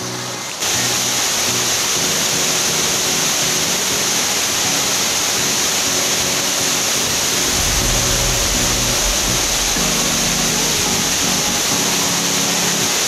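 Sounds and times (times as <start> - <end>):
waterfall rushing: 0.0 - 13.0
low rumble: 7.4 - 11.8.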